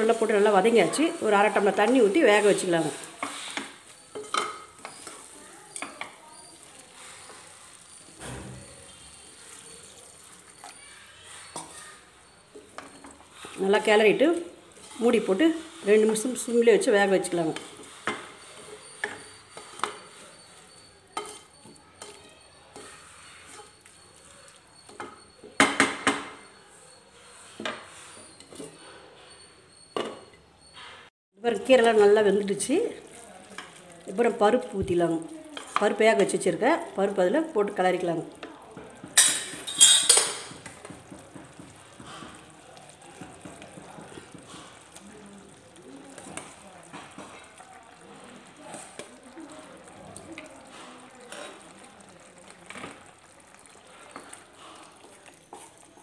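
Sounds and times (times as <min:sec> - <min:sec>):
wooden spatula scraping metal pan: 0:00.0 - 0:10.5, 0:11.2 - 0:24.4, 0:26.5 - 0:29.4, 0:35.6 - 0:36.5.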